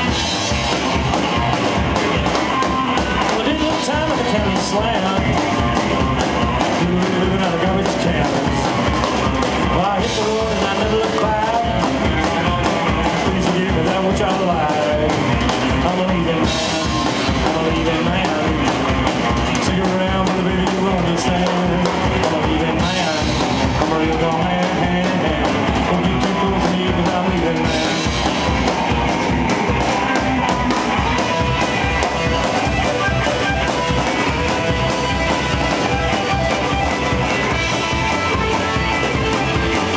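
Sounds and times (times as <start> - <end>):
drum kit: 0.0 - 39.9
electric guitar: 0.0 - 39.9
upright bass: 0.0 - 39.9
man singing: 3.0 - 28.6.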